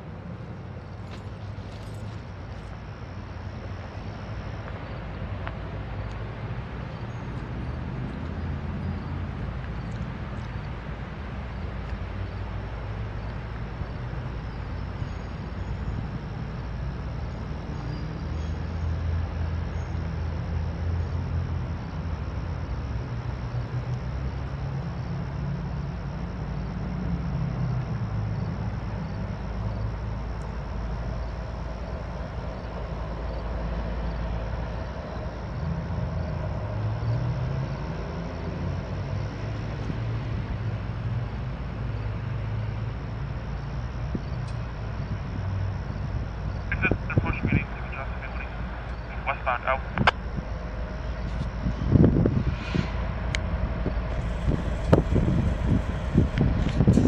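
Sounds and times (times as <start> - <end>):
low engine rumble: 28.0 - 57.0.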